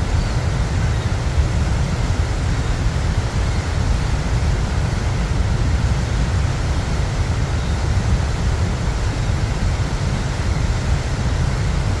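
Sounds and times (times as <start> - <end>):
waterfall rushing rumble: 0.0 - 12.0.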